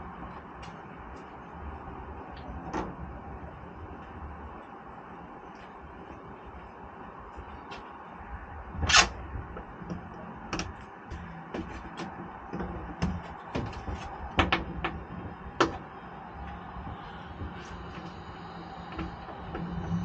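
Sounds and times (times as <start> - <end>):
low hum: 0.0 - 20.0
tool clicking and knocking on metal: 9.6 - 15.9.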